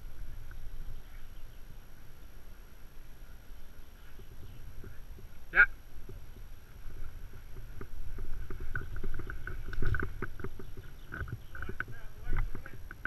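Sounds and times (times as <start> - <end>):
rope and branch creaking: 4.0 - 13.0.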